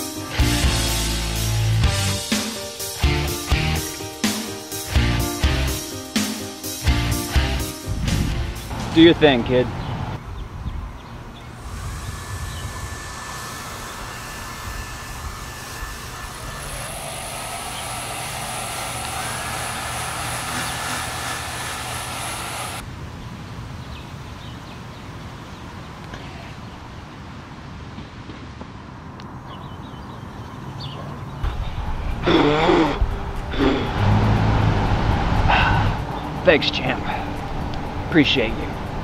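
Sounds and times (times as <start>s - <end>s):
engine drone: 11.2s - 22.9s, 31.4s - 39.0s
thin whine rising in pitch: 11.4s - 22.8s, 31.6s - 39.0s
high hiss: 11.5s - 22.8s.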